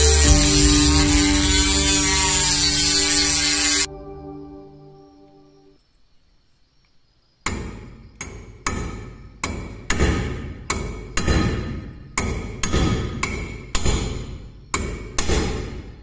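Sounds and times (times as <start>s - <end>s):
rotary tool hum: 0.0s - 3.9s
hammer striking metal punch: 7.5s - 15.8s.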